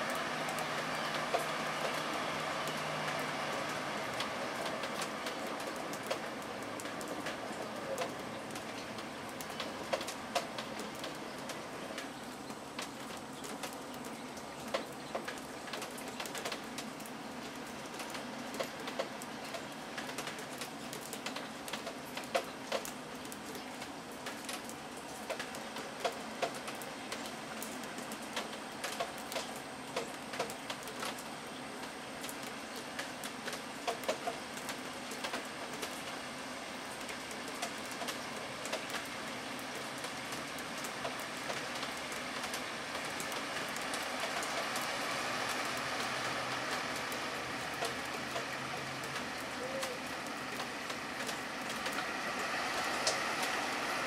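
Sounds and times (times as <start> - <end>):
outdoor background hiss: 0.0 - 54.0.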